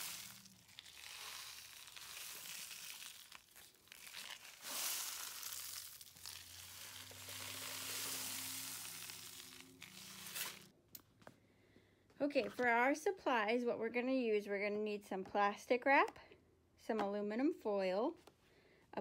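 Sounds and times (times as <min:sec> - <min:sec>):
rain stick hissing: 0:00.0 - 0:03.4, 0:04.4 - 0:10.7.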